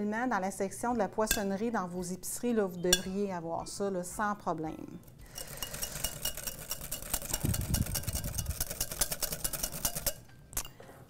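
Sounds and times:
whisk clicking in glass bowl: 5.3 - 10.3.

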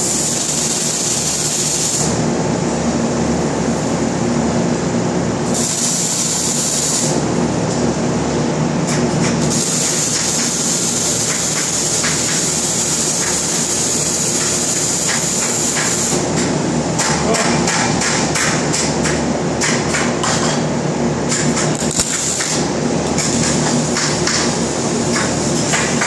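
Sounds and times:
welding arc crackling hiss: 0.0 - 2.2, 5.4 - 7.2, 9.5 - 16.3, 21.8 - 26.0
shop machinery hum: 0.0 - 26.0.

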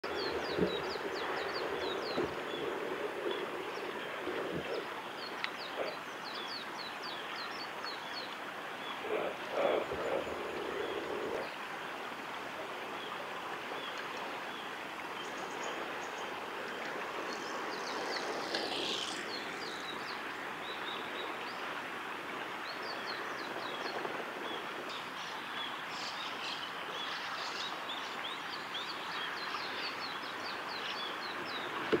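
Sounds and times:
small birds chirping: 0.0 - 11.6, 13.0 - 21.7
stream rushing hiss: 0.0 - 32.0.

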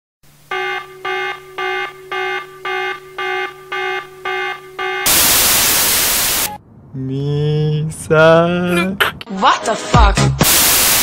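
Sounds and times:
electronic alarm beeping: 0.5 - 6.6
loud static burst: 5.0 - 6.6, 10.4 - 11.0.

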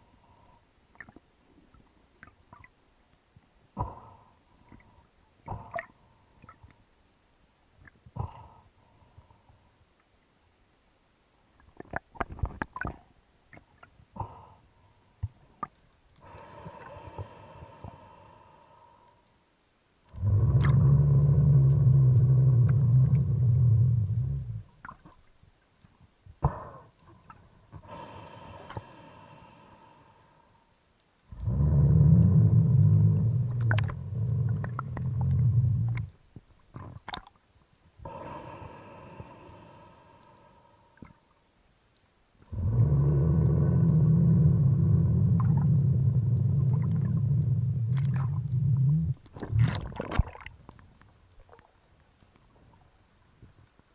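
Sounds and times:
underwater clicks and knocks: 11.7 - 14.0
low pulsing underwater rumble: 20.1 - 25.4, 31.2 - 37.2, 42.4 - 53.8.

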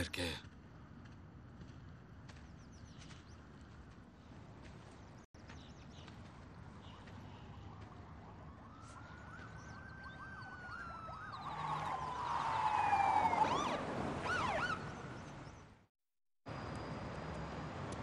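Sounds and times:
police siren wailing: 7.6 - 15.0
siren yelping sweeps: 7.6 - 15.0.

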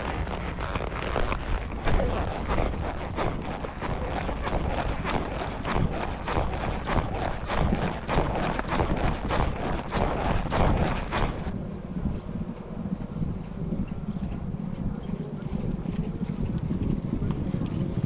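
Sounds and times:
horse hoofbeats on dirt: 0.0 - 11.6
wind buffeting microphone: 0.0 - 18.0.

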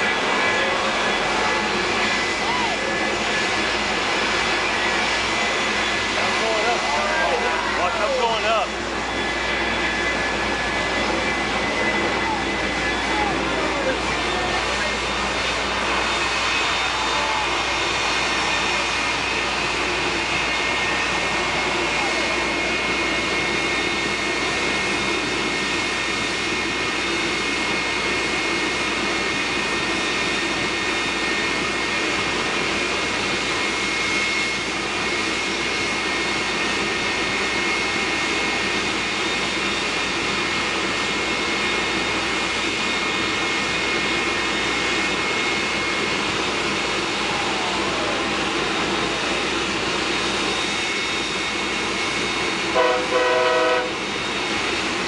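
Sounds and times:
turbine engine idling: 0.0 - 55.0
horn blast: 52.7 - 54.0.

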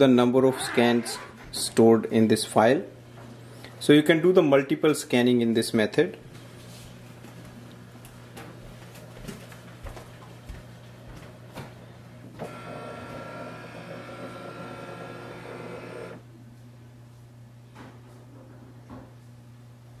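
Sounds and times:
scanner motor whirring: 12.4 - 16.2.

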